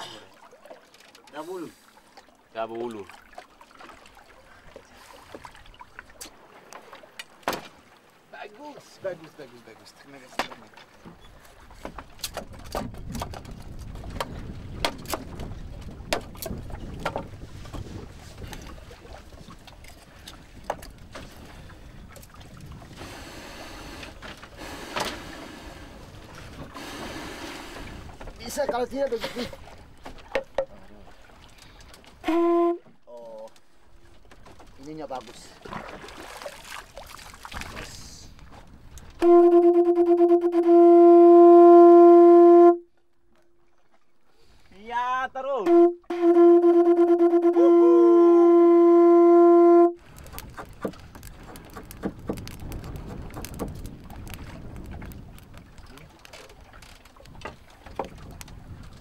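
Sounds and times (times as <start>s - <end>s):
wind rumble: 12.0s - 28.9s, 50.0s - 59.0s
conch shell horn note: 32.2s - 33.0s, 39.2s - 43.0s, 45.6s - 50.0s.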